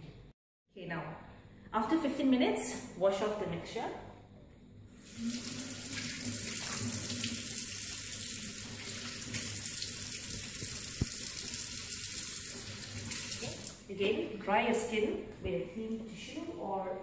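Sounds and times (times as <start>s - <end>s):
face rinsed with water: 5.0s - 13.9s
tap running into steel sink: 10.3s - 11.6s.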